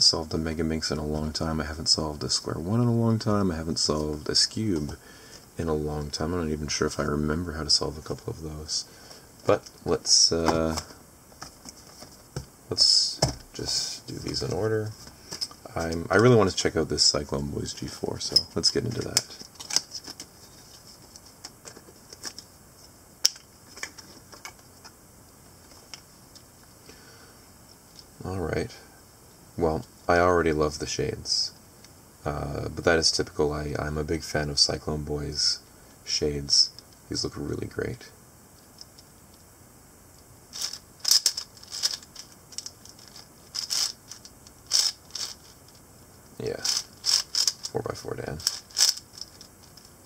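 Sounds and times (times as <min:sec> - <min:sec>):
cardboard and plastic being handled: 0:09.4 - 0:12.5, 0:18.2 - 0:22.9.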